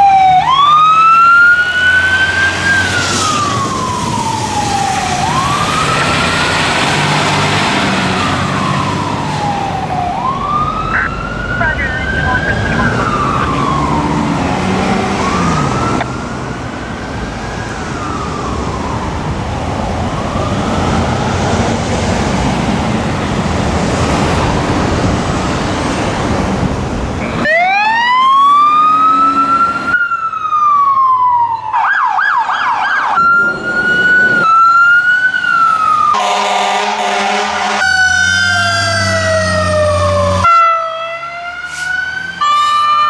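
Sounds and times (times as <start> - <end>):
engine and traffic noise: 0.0 - 43.0
fire engine siren wailing: 0.0 - 43.0
horn blast: 36.2 - 38.0.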